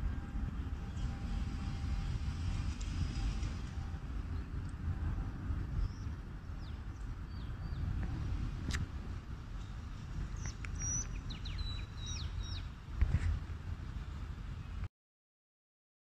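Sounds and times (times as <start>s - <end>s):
low steady rumble: 0.0s - 14.9s
small birds chirping: 5.8s - 7.9s, 9.6s - 12.8s.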